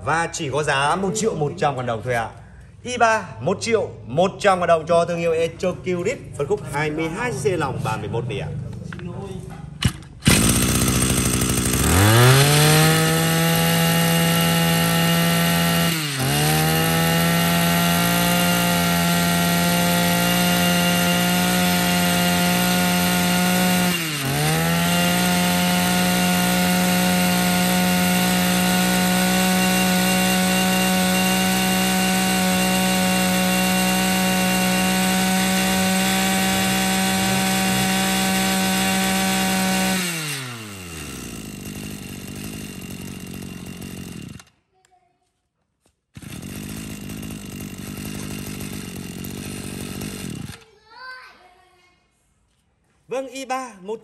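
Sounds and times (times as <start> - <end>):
brush cutter engine revving: 6.2 - 44.6, 46.2 - 50.7.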